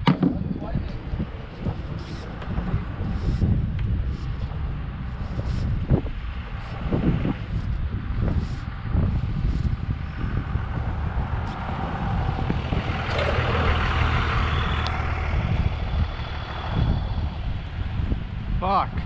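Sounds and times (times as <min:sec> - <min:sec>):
engine running: 0:09.1 - 0:18.4.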